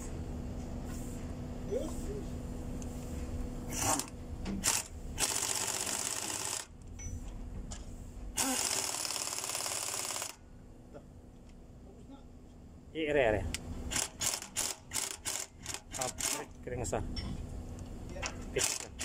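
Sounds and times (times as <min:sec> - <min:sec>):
pneumatic impact wrench hammering: 0:03.7 - 0:07.2, 0:08.3 - 0:10.4, 0:13.9 - 0:16.5, 0:18.3 - 0:19.0.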